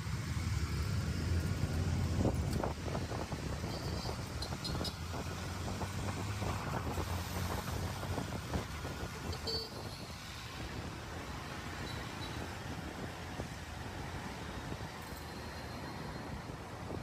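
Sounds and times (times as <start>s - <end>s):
engine and tyre rumble: 0.0s - 17.0s
wind buffeting microphone: 1.8s - 15.0s.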